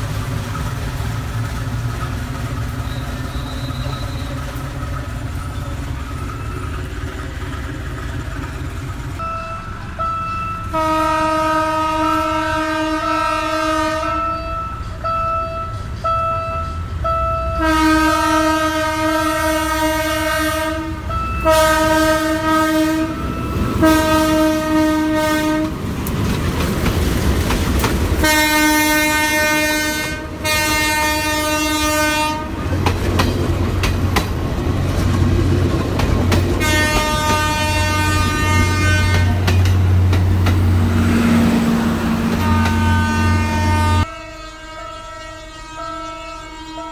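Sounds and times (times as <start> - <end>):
train wheels clacking on rails: 0.0 - 11.4, 12.0 - 44.1
locomotive engine rumbling: 0.0 - 46.9
train air horn blasts: 10.7 - 25.8, 28.2 - 32.7, 36.6 - 39.6, 40.9 - 46.9.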